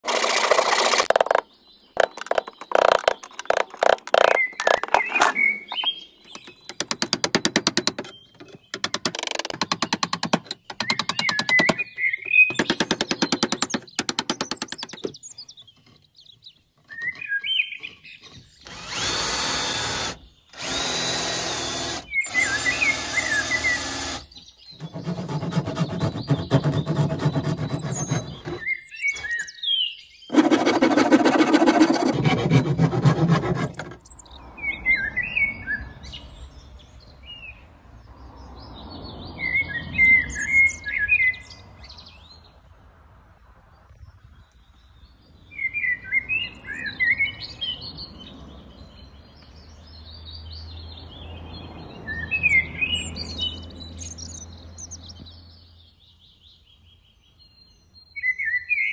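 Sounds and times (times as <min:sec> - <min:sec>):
handsaw cutting wood: 0:00.0 - 0:01.4, 0:18.6 - 0:29.3, 0:30.3 - 0:34.0
scratching on wood: 0:00.0 - 0:01.4, 0:02.0 - 0:16.2, 0:17.8 - 0:29.4, 0:30.3 - 0:34.2
bird chirps: 0:01.0 - 0:30.4, 0:33.8 - 0:42.6, 0:43.7 - 0:58.9
power drill running: 0:18.6 - 0:24.3.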